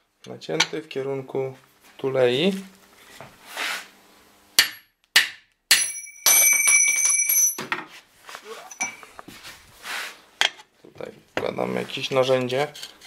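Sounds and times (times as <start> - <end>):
steel tools clinking together: 8.6 - 9.1.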